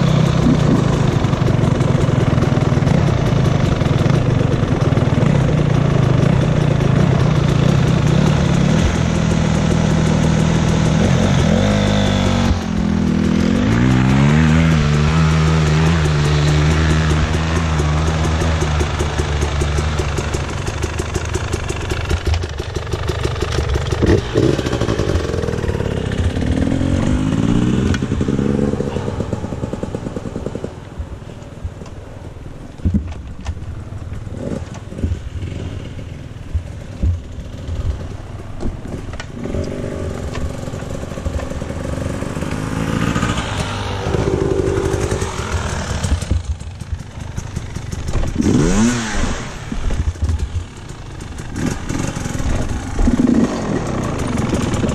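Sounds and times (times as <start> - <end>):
dirt bike engine revving: 0.0 - 30.8, 38.8 - 54.9
bike rattles and knocks: 0.0 - 54.9.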